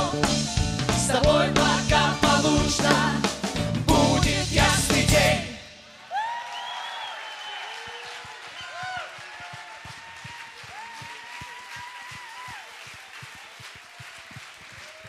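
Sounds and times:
congregation clapping: 6.2s - 15.0s.

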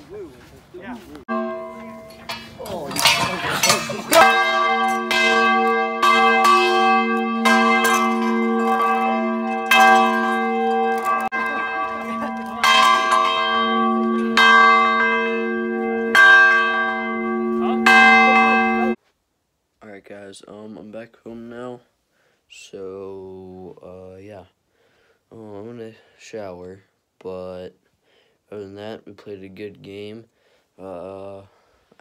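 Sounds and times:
deep ringing bell tones: 1.3s - 19.0s.

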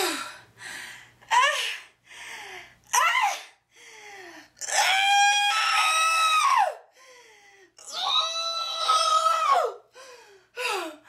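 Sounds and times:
woman breathing: 0.0s - 2.9s, 3.6s - 4.6s, 6.9s - 7.8s, 9.9s - 11.0s
woman screaming: 4.6s - 6.8s, 7.8s - 9.8s.

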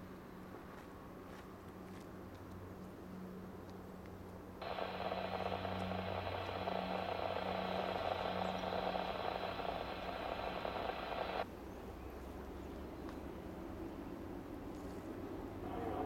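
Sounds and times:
diesel locomotive drone: 4.6s - 11.4s, 15.5s - 16.0s
locomotive horn blast: 15.6s - 16.0s.

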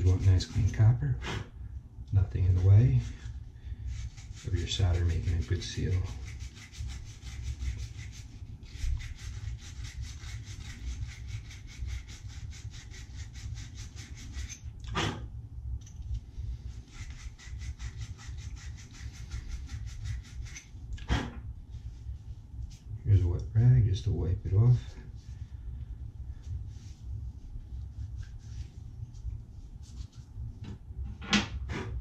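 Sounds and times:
wire brush rasping on copper pipe: 0.0s - 1.4s, 2.4s - 15.2s, 16.7s - 21.3s.

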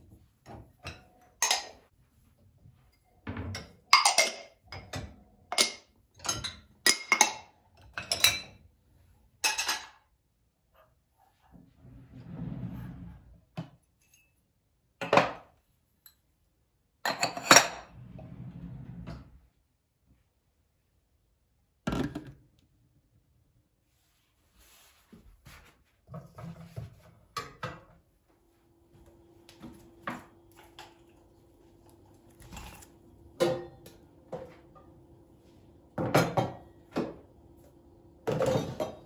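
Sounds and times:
dishes and utensils clattering: 0.4s - 1.9s, 2.9s - 8.6s, 9.4s - 10.0s, 17.1s - 18.0s, 26.1s - 28.0s, 29.6s - 35.0s, 36.0s - 37.3s, 38.2s - 39.0s.

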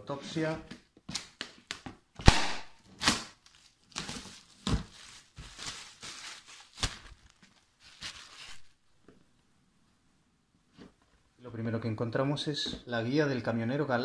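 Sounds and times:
plastic shrink-wrap crinkling: 3.0s - 8.8s.

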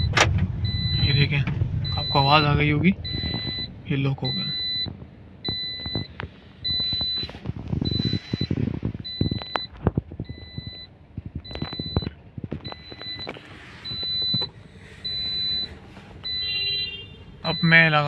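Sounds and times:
seatbelt reminder beeps: 0.0s - 18.0s
car knocks and rattles: 4.7s - 14.6s.

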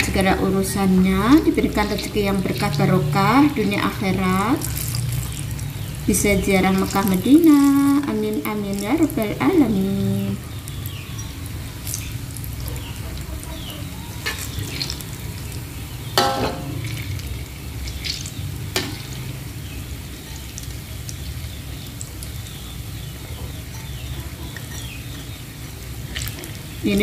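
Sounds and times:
dough sizzling in hot oil: 0.0s - 13.4s, 14.1s - 23.8s, 24.6s - 27.0s
metal spatula clinking on wok: 16.2s - 16.8s.

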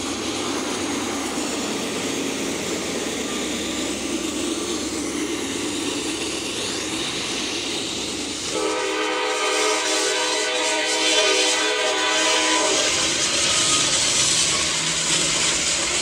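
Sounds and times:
locomotive horn blowing: 8.5s - 13.2s.

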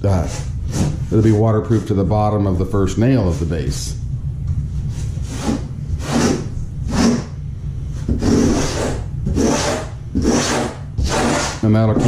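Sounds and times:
steel trowel scraping mortar: 8.2s - 12.0s.

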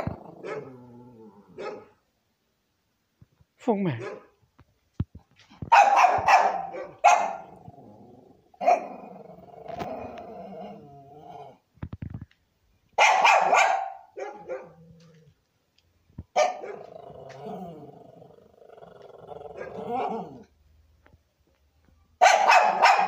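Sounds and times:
dog bark-whine: 0.0s - 0.7s, 1.6s - 2.0s, 4.0s - 4.3s, 5.7s - 7.5s, 8.6s - 9.0s, 13.0s - 14.8s, 16.4s - 16.9s, 22.2s - 23.0s
dog barking: 0.0s - 0.8s, 1.5s - 2.0s, 3.9s - 4.4s, 5.7s - 7.5s, 8.6s - 9.0s, 13.0s - 14.8s, 16.4s - 16.9s, 22.2s - 23.0s.

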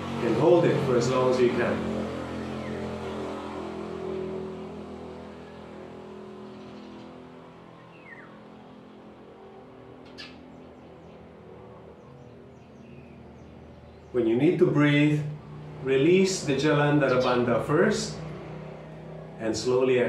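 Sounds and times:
low engine hum: 0.0s - 20.0s
bird chirp: 2.3s - 3.2s, 6.4s - 8.6s, 10.0s - 14.6s, 16.8s - 18.0s.

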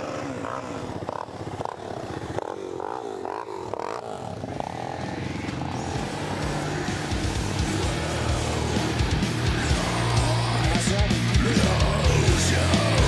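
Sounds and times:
engine revving: 0.0s - 13.0s
rock music with electric guitar: 4.4s - 13.0s.

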